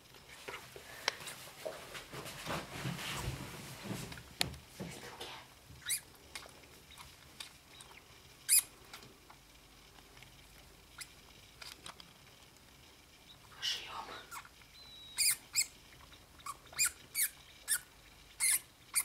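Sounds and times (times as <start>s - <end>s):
rustle in paper bedding: 1.2s - 4.2s
degus squeaking: 5.8s - 6.2s, 6.9s - 8.8s, 14.3s - 19.0s.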